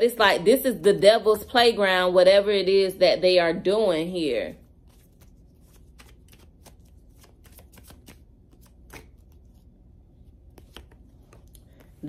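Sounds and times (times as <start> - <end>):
cards being shuffled: 4.6 - 12.0.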